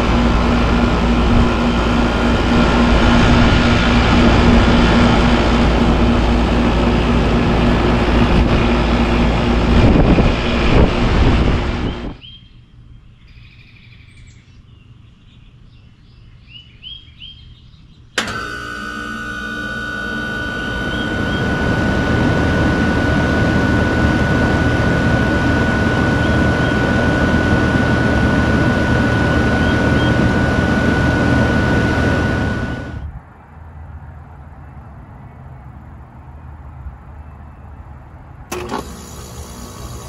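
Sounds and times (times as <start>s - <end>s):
heat pump running with whine: 0.0s - 12.2s, 18.2s - 33.2s, 38.5s - 40.0s
heat pump switch click: 18.2s - 21.5s, 38.5s - 40.0s.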